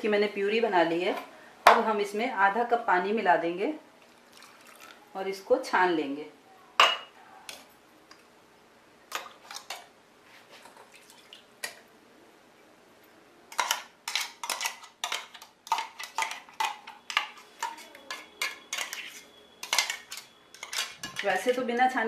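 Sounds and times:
metal spoon clinking: 0:13.6 - 0:21.6.

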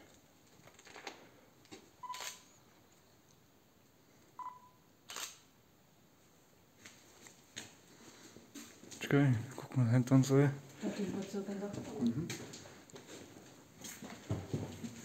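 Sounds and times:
camera focus beep: 0:02.0 - 0:02.6, 0:04.4 - 0:05.5
camera shutter click: 0:02.1 - 0:02.5, 0:05.1 - 0:05.5
faint footsteps: 0:06.8 - 0:09.7, 0:10.6 - 0:15.0.

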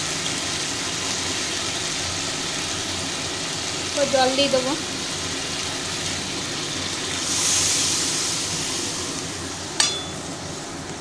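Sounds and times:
paste sizzling in hot oil: 0:00.0 - 0:11.0
hiss of water poured in: 0:07.0 - 0:09.5
metal spatula clink on pan: 0:09.8 - 0:10.3.

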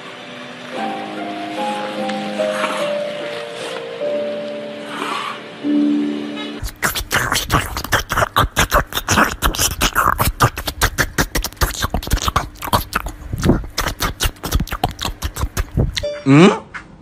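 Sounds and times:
puppy chewing watermelon: 0:06.6 - 0:16.1.

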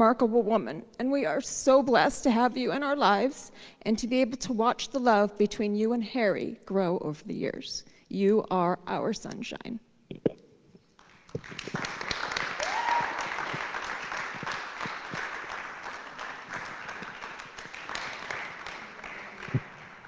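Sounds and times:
audience applauding: 0:11.0 - 0:20.0.

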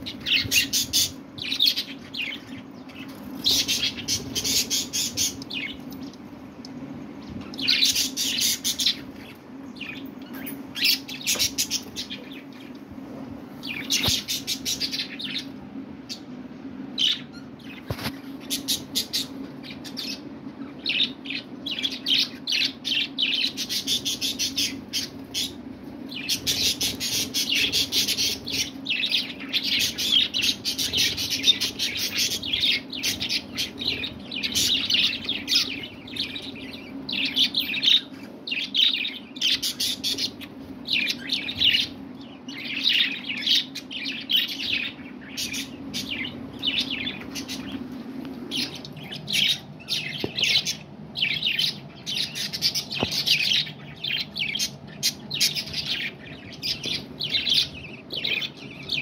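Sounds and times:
budgerigars chattering: 0:26.2 - 0:47.8.

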